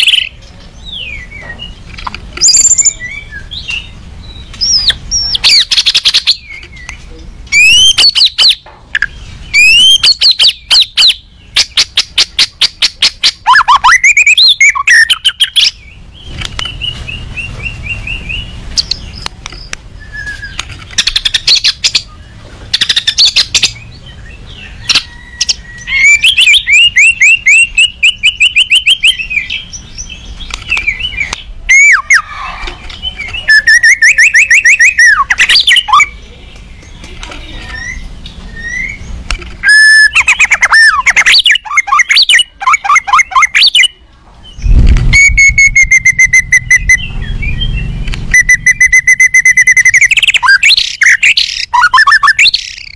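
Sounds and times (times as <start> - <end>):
bird singing loudly: 2.4 - 19.2, 20.0 - 37.0, 37.7 - 52.9.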